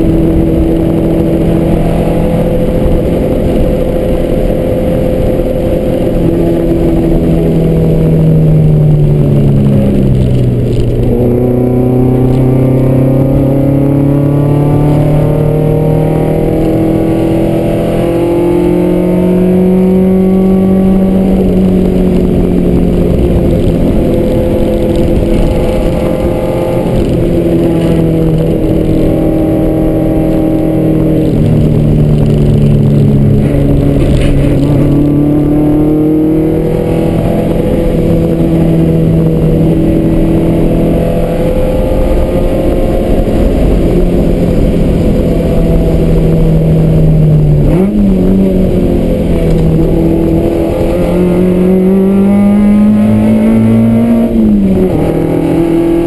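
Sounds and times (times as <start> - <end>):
car engine revving from inside cabin: 0.1 - 56.0.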